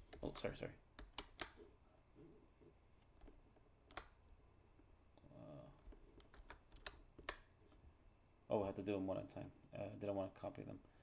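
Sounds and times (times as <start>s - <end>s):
computer mouse and keyboard clicks: 1.0s - 1.6s, 3.0s - 4.2s, 5.8s - 7.8s.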